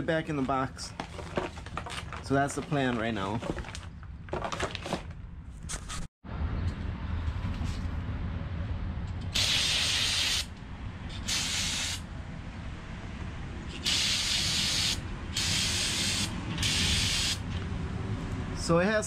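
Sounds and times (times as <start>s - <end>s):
aerosol spray hissing: 9.4s - 10.5s, 11.2s - 12.0s, 13.8s - 17.4s.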